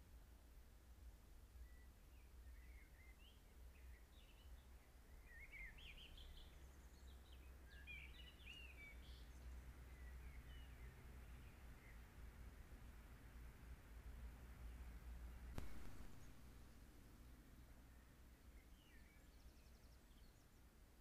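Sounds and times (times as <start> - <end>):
faint songbird song: 0.0 - 21.0
low hum: 15.6 - 17.0.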